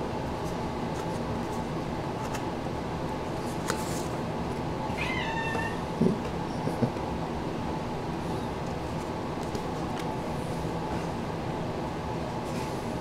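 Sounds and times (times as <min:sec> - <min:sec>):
steady background hum: 0:00.0 - 0:13.0
cards being handled: 0:00.4 - 0:02.5, 0:03.4 - 0:04.2, 0:08.6 - 0:10.2.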